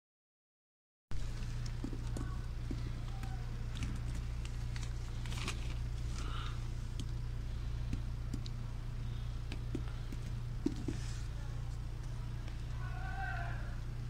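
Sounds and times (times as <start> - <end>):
steady low hum: 1.1 - 14.0
plastic rustling: 1.2 - 6.6
dates clicking and tapping: 1.4 - 5.0, 6.9 - 11.0.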